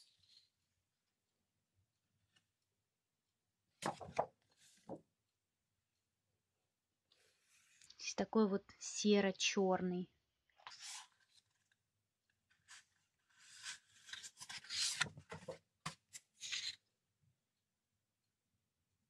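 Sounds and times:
paper sheets rustling: 12.6 - 16.8.

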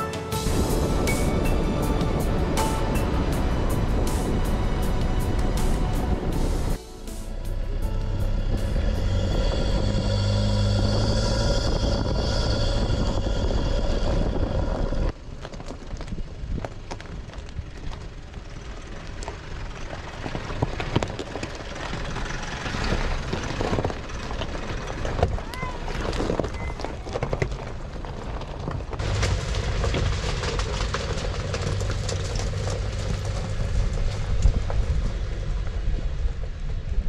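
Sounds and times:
tyres rolling: 0.0 - 36.4
pickup engine drone: 0.3 - 15.1
stones clicking on gravel: 15.1 - 35.2.

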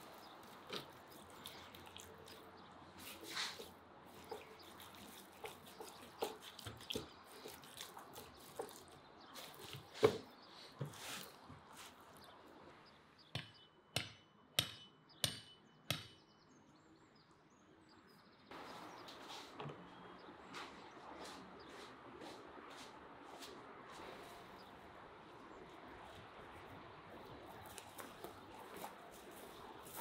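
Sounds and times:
hands squelching raw chicken: 0.0 - 9.9
hammer strikes: 13.4 - 16.2.

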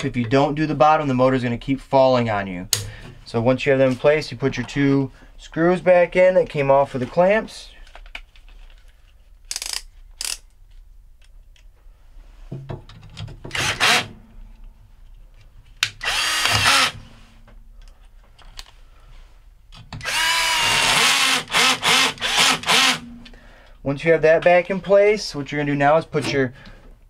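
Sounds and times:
power drill driving screws: 13.5 - 14.1, 16.0 - 17.0, 20.0 - 23.0.

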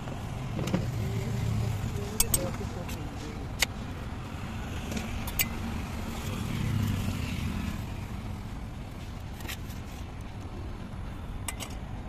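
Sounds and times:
vehicle passing: 0.0 - 8.6
road traffic rumble: 0.0 - 12.0.

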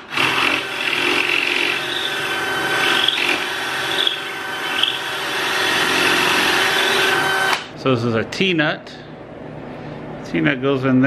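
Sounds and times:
cordless drill boring into wood: 0.0 - 7.6.

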